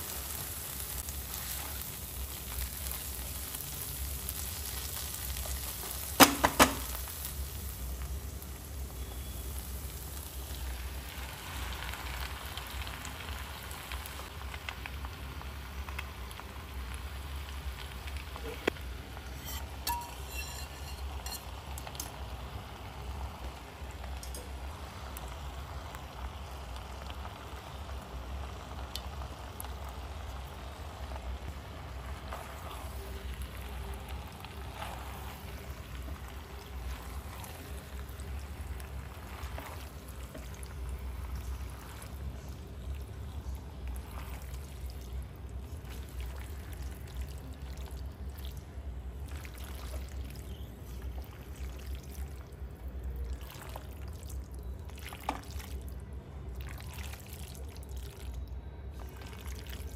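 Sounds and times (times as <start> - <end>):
spatula stirring wet pasta: 19.2 - 22.2, 29.0 - 59.9
spatula scraping a pan: 19.3 - 21.6.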